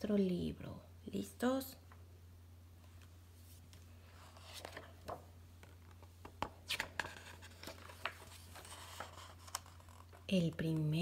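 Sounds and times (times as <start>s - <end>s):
low steady hum: 0.0s - 11.0s
page rustling: 3.4s - 10.3s
paper scraping: 6.7s - 10.2s.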